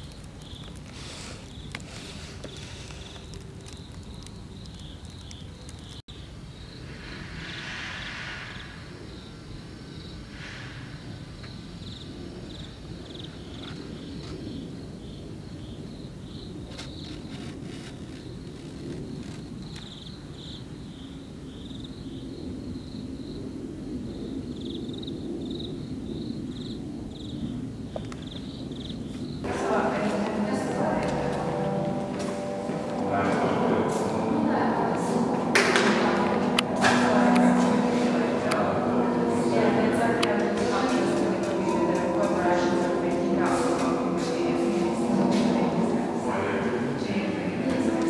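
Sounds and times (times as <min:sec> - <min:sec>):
insects chirping: 0:00.0 - 0:48.0
hiss: 0:00.8 - 0:03.4, 0:06.8 - 0:09.0, 0:10.2 - 0:11.3
low background rumble: 0:28.7 - 0:48.0.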